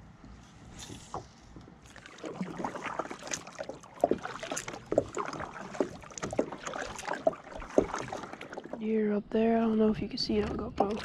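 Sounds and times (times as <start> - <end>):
paddle strokes splashing in water: 0.8 - 8.9, 9.6 - 11.0
water dripping: 1.9 - 8.8, 9.7 - 11.0.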